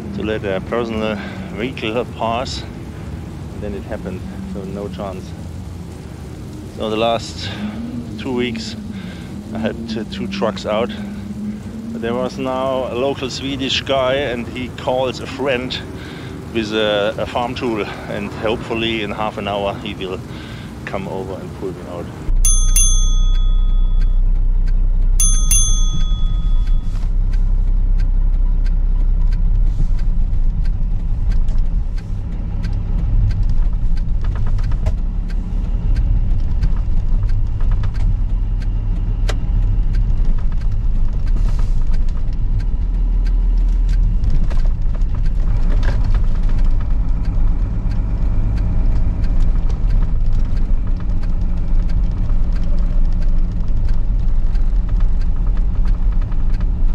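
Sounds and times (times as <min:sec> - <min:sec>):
diesel engine running under load: 0:06.8 - 0:20.9, 0:22.3 - 0:56.9
notification bell chime: 0:22.4 - 0:24.2, 0:25.2 - 0:27.0.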